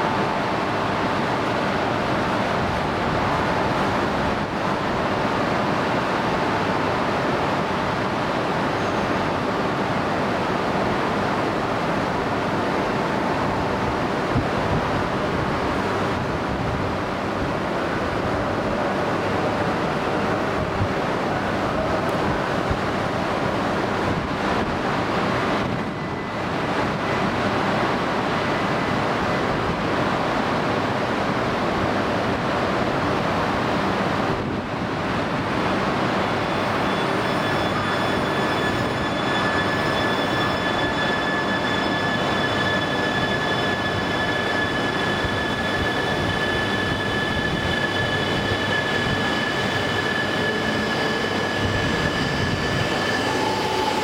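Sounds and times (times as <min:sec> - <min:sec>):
train pulling out: 0:34.4 - 0:54.0.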